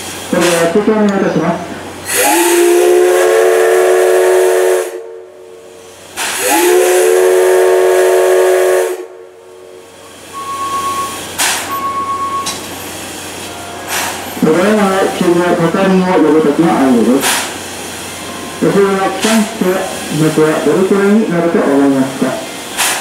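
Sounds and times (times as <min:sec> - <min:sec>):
steady steam hiss: 0:00.0 - 0:23.0
steam locomotive whistle blasts: 0:02.1 - 0:05.3, 0:06.2 - 0:09.4, 0:10.3 - 0:12.6
sharp click: 0:11.4 - 0:11.7.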